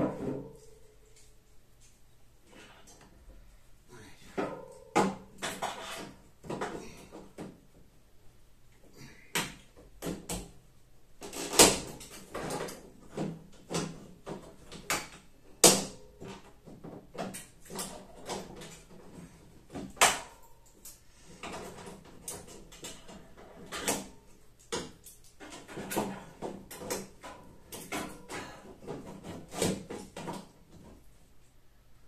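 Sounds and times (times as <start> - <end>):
wood banging on sheet metal: 0.0 - 0.6, 4.3 - 7.6, 11.2 - 20.4, 21.4 - 31.0.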